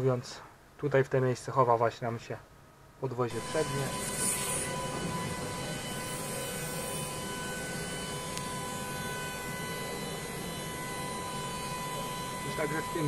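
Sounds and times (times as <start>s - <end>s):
machinery hum: 2.7s - 13.0s
high whine: 3.0s - 13.0s.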